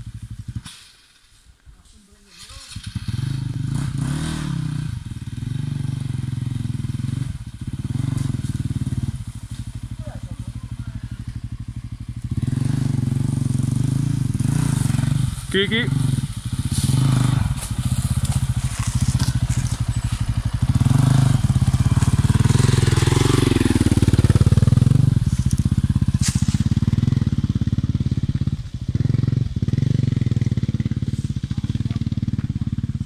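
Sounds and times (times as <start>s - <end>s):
sharp crack: 0.6s - 1.3s
dirt bike engine revving: 2.4s - 33.0s.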